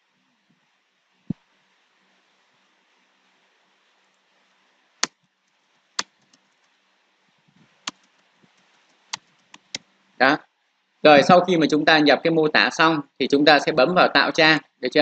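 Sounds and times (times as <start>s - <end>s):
keyboard keys clicking: 7.8s - 9.8s.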